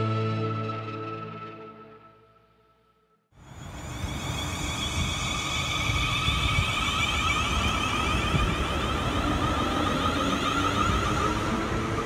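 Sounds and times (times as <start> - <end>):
train traction motor whine: 3.4 - 12.0
wheels rumbling on rails: 3.4 - 12.0.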